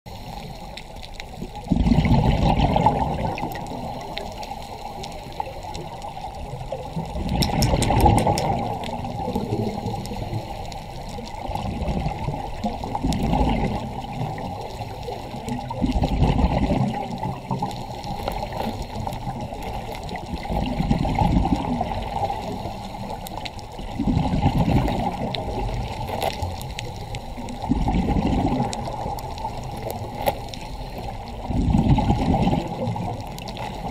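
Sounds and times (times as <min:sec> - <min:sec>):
underwater bubbles gushing: 0:00.1 - 0:33.9
watery hiss: 0:07.2 - 0:16.1, 0:16.9 - 0:33.9.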